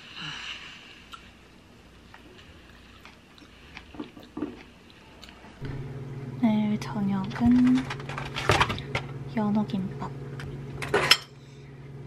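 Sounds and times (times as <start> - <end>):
person chewing grapes: 1.0 - 5.7.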